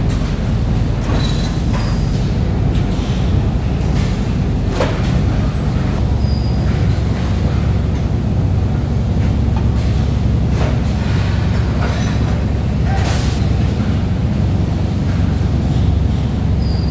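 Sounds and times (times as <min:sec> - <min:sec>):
conveyor machinery rumbling: 0:00.0 - 0:16.9.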